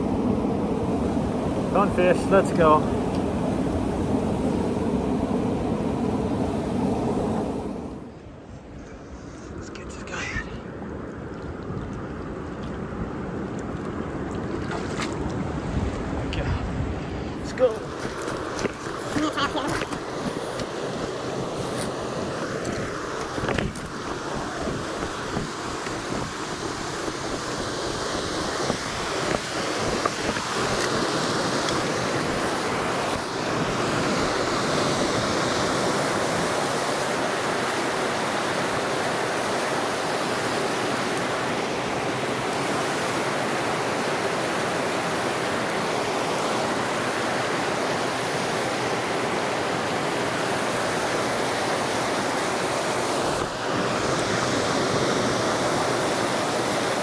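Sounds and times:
river rapids rushing over rocks: 17.7 - 57.0.

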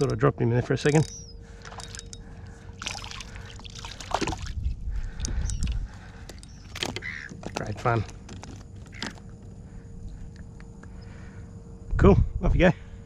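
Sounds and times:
water splashing against kayak: 2.8 - 9.1.

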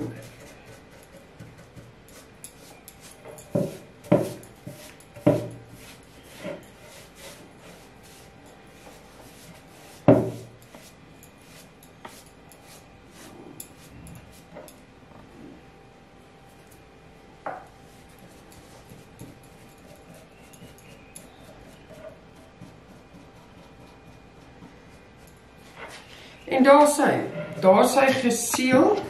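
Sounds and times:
brush bristles rubbing on wood: 0.0 - 14.5, 17.9 - 26.1.

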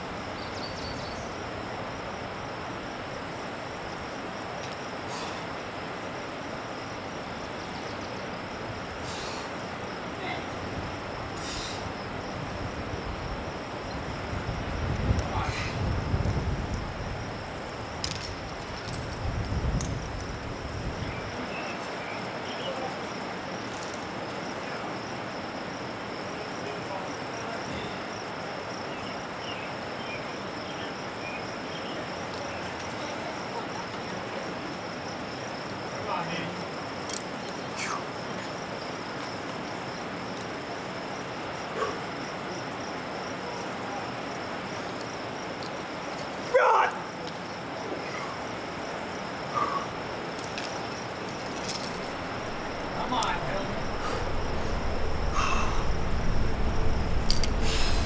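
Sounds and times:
crickets buzzing: 0.0 - 58.0
high insect drone: 0.0 - 58.0
outdoor background hiss: 0.0 - 58.0
low rumble: 51.8 - 58.0
short falling cry: 52.8 - 58.0.

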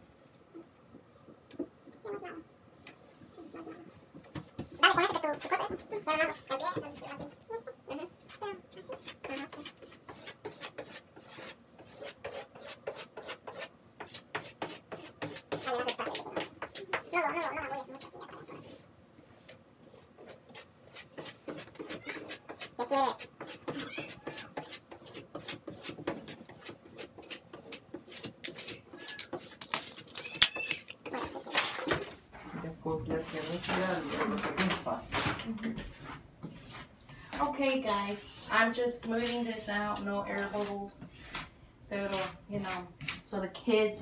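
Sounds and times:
rasping strokes smoothing decal: 37.9 - 41.4.

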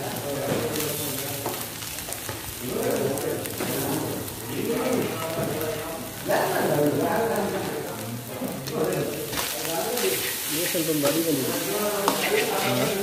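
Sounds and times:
rice sizzling in a wok: 0.0 - 13.0
ladle scraping and knocking pan: 12.0 - 13.0.

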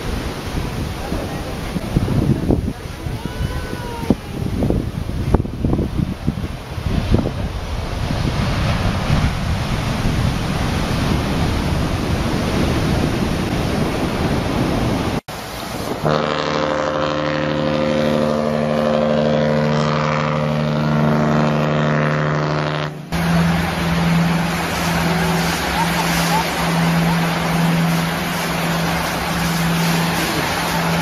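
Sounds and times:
heavy surf breaking: 0.0 - 31.0
ship's horn blast: 16.0 - 31.0.

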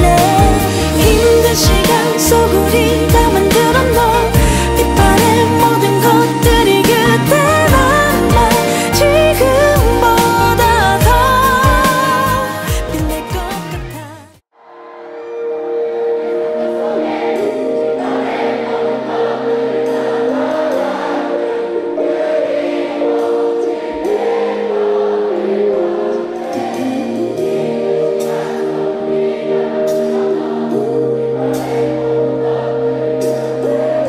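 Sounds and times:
slow pop ballad singing: 0.0 - 14.4.

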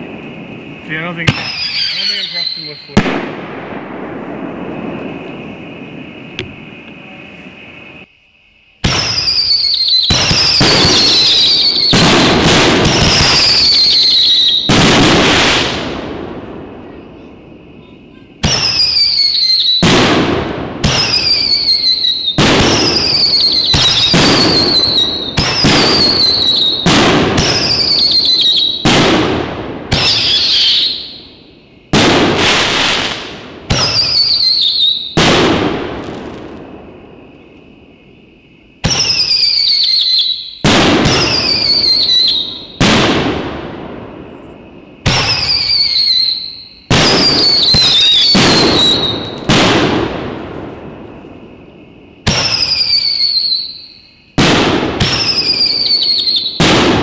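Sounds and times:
shrill falling whistle: 8.9 - 11.9, 13.0 - 14.7, 38.9 - 40.6, 52.4 - 54.0.

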